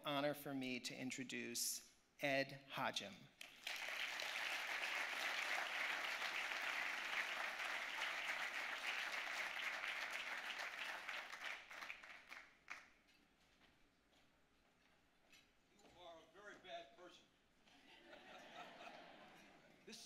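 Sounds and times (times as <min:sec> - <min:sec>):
audience applauding: 0:03.4 - 0:12.9.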